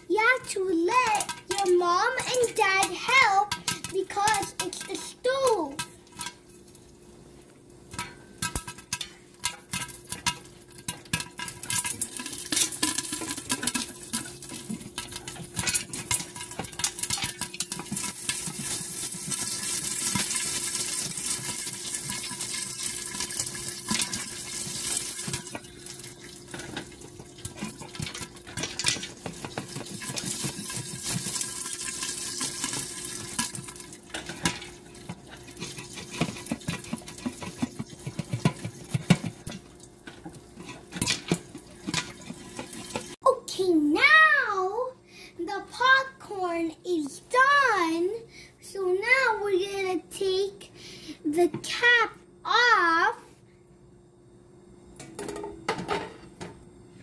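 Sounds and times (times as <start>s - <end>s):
popcorn popping: 0.1s - 6.8s, 7.7s - 43.2s
hot oil hissing: 16.1s - 28.3s, 29.1s - 34.0s.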